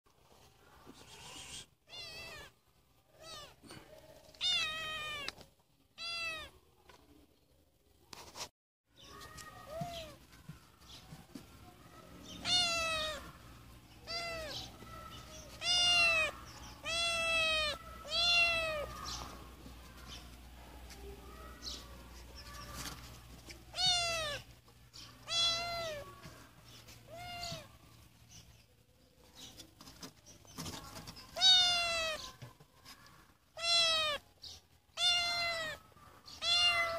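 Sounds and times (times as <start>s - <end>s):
kitten meowing: 1.1s - 2.5s, 3.2s - 3.6s, 4.4s - 5.4s, 6.0s - 6.5s, 12.4s - 13.3s, 14.0s - 14.6s, 15.6s - 19.0s, 23.7s - 24.4s, 25.2s - 26.0s, 27.1s - 27.7s, 31.4s - 32.2s, 33.6s - 34.2s, 35.0s - 35.8s, 36.4s - 36.9s.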